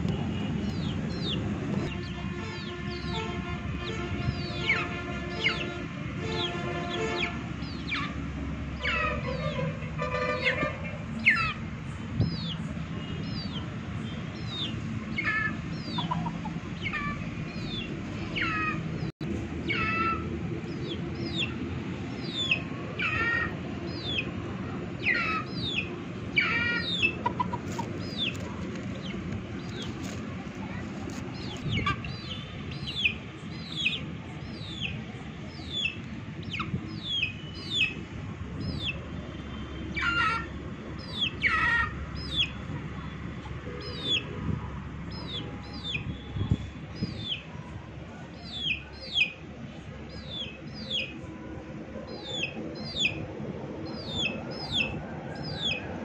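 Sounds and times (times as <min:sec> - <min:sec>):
chicks peeping: 0:00.6 - 0:03.2, 0:14.4 - 0:18.8, 0:25.0 - 0:34.9, 0:47.0 - 0:47.4, 0:52.2 - 0:53.2, 0:53.8 - 0:55.8.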